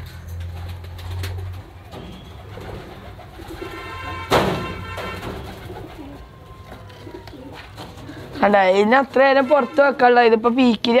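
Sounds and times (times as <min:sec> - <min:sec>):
pigeons cooing: 0:00.7 - 0:04.4, 0:05.2 - 0:08.8.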